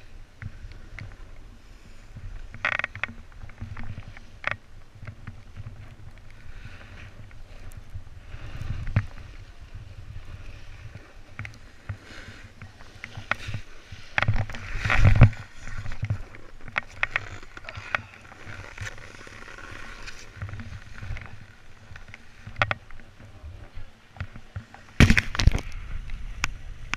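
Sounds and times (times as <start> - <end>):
wind rumbling on microphone: 0.0 - 26.9
snowboard scraping over snow: 6.4 - 22.4
snowboard knocks: 24.9 - 25.8.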